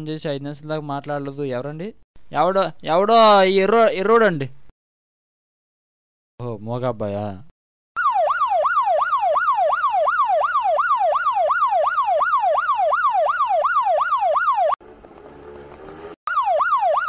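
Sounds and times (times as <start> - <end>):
ambulance siren wailing: 8.0 - 15.7, 16.3 - 17.0.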